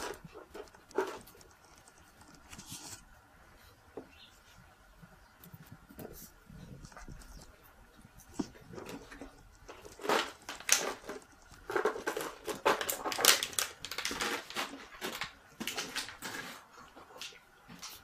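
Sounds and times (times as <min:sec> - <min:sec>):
plastic bottle crinkling: 0:08.2 - 0:18.0.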